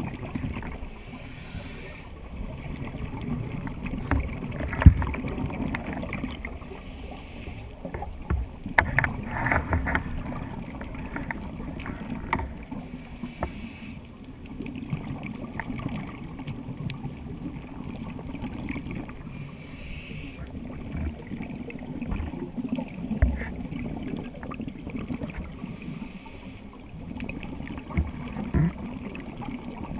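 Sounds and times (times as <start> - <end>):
low bubbling and crackling: 0.0 - 29.9
diver breathing through regulator: 0.8 - 2.2, 6.6 - 7.9, 11.9 - 14.1, 19.3 - 20.6, 25.5 - 26.8.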